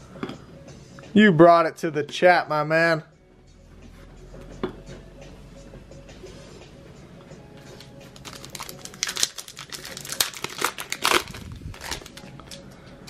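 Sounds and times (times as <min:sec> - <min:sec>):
faint background music: 0:00.0 - 0:13.0
plastic wrapper tearing and crinkling: 0:08.1 - 0:12.6.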